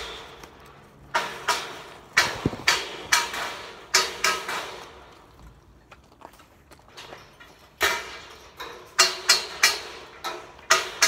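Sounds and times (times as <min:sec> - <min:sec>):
metal scaffolding clanging: 0:00.0 - 0:05.4, 0:06.4 - 0:11.0.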